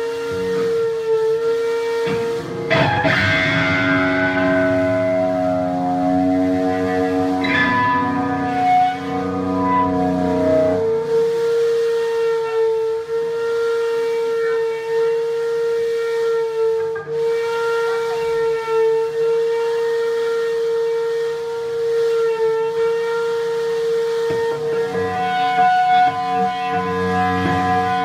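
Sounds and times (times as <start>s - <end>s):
electric guitar feedback: 0.0s - 28.0s.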